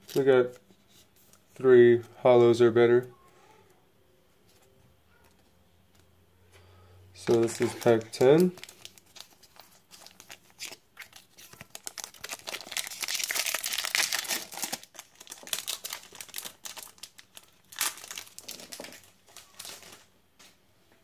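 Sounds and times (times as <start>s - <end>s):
foil wrapper crinkling and tearing: 7.2s - 20.1s.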